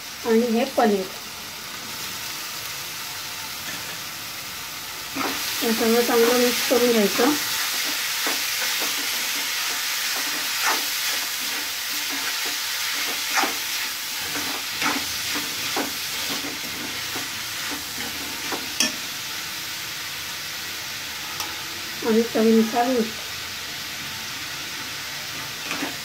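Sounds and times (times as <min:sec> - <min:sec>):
food sizzling while frying: 0:00.0 - 0:26.0
spatula stirring in a pan: 0:05.1 - 0:19.0.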